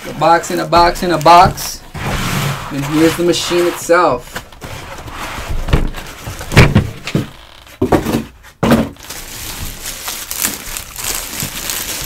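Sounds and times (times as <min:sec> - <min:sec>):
plastic bag crinkling: 0:00.0 - 0:01.8, 0:09.0 - 0:12.0
packaging inserts thumping: 0:00.5 - 0:01.9.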